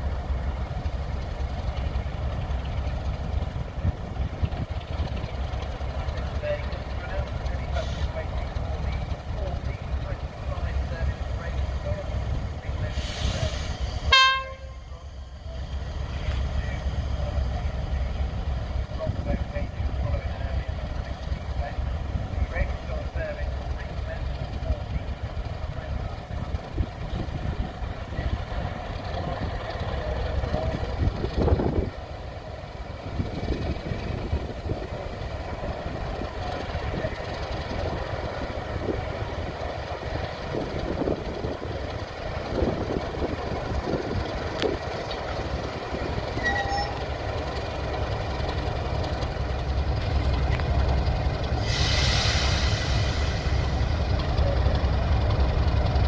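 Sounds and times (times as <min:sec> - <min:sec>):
diesel locomotive engine rumble: 0:00.0 - 0:56.0
loud hiss: 0:12.9 - 0:14.1, 0:51.5 - 0:54.1
wheels knocking and squealing: 0:18.2 - 0:56.0.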